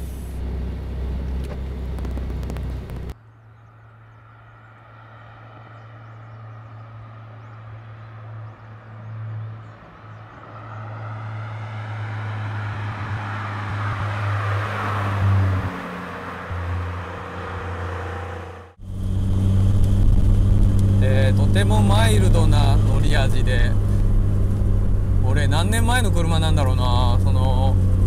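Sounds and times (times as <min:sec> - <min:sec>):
car engine: 0:00.0 - 0:28.0
low rumble: 0:18.6 - 0:28.0.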